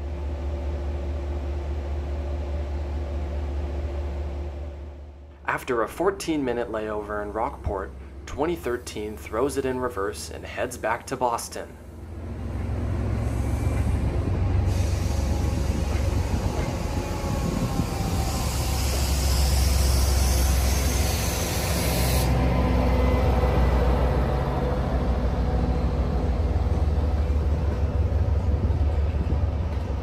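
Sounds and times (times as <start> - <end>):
diesel engine under load: 0.0 - 30.0
train wheels rumbling on rails: 0.0 - 30.0
air hiss: 13.1 - 22.4.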